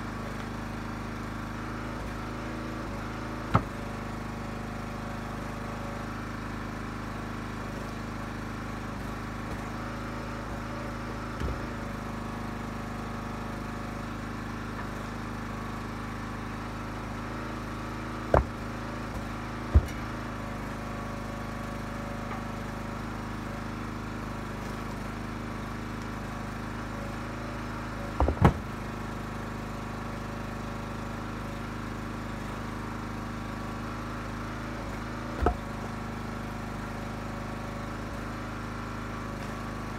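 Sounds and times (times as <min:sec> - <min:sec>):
log splitter engine running: 0:00.0 - 0:39.9
wood pieces knocking into truck bed: 0:03.5 - 0:04.0, 0:18.2 - 0:20.3, 0:28.1 - 0:28.8, 0:35.4 - 0:35.8.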